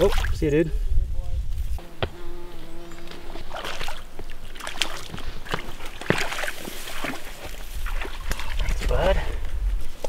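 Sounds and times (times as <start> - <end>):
water splashing and sloshing: 0.0 - 0.4, 3.3 - 9.3.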